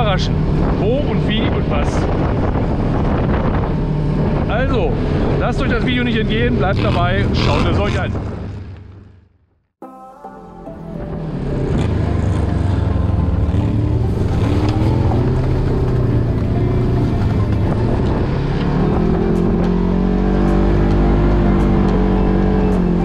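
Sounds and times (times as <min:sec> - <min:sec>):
vehicle engine running: 0:10.9 - 0:23.0.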